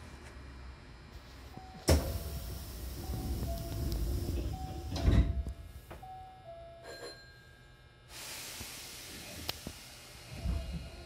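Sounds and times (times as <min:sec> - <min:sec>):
train doors thudding shut: 0:01.8 - 0:06.0
steady hiss: 0:01.9 - 0:04.5, 0:08.1 - 0:10.5
two-note door chime: 0:02.9 - 0:07.5.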